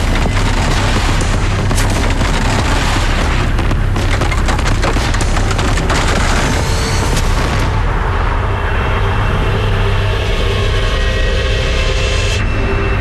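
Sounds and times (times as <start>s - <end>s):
deep rumble: 0.0s - 13.0s
antlers clacking and knocking: 3.8s - 6.8s.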